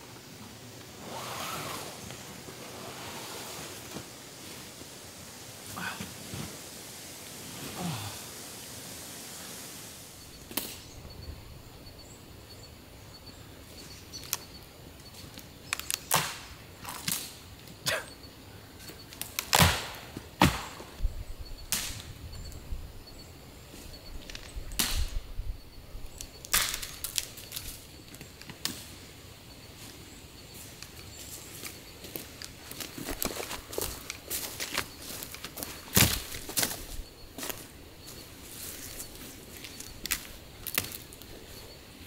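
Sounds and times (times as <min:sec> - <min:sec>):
dead branches snapping: 0:15.7 - 0:17.4, 0:19.2 - 0:20.9, 0:21.7 - 0:22.1, 0:24.3 - 0:25.2, 0:26.4 - 0:28.9, 0:31.6 - 0:36.8, 0:39.6 - 0:41.3.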